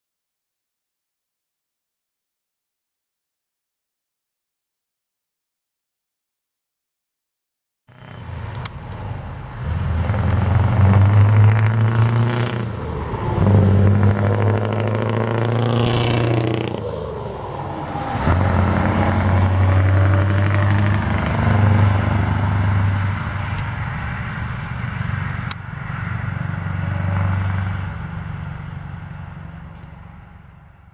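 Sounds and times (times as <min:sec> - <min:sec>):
diesel engine revving: 0:07.9 - 0:30.9.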